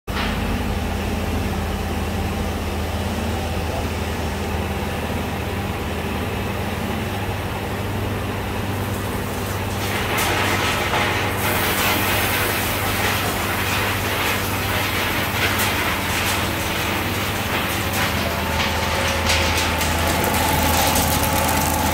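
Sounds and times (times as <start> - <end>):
shredder motor humming: 8.2 - 21.9
loud rough grinding noise: 8.8 - 21.9.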